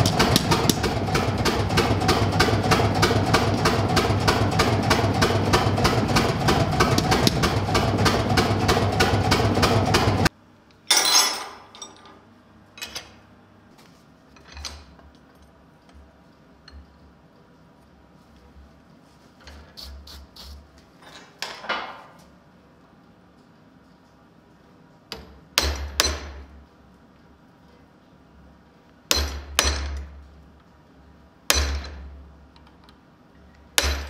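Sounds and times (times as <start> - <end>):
power hammer pounding steel: 0.0 - 10.3, 29.1 - 30.0, 31.5 - 32.0, 33.8 - 34.0
steady motor hum: 0.0 - 10.3.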